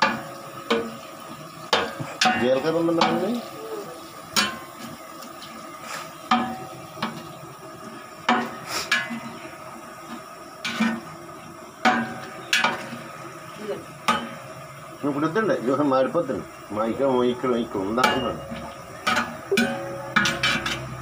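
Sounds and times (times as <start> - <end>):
frying sizzle: 0.0 - 21.0
metal ladle clinking on pot: 18.0 - 21.0.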